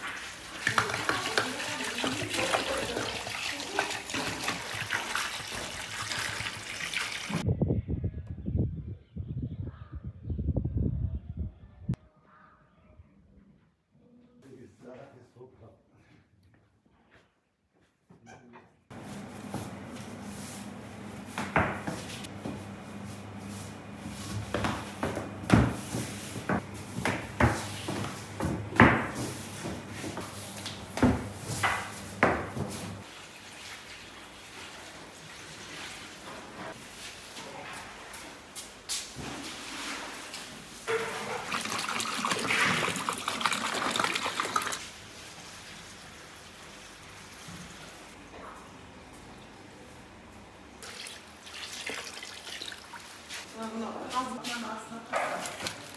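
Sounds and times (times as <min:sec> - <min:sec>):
water gushing and splashing: 0:00.0 - 0:07.4, 0:41.1 - 0:44.8, 0:50.8 - 0:53.3.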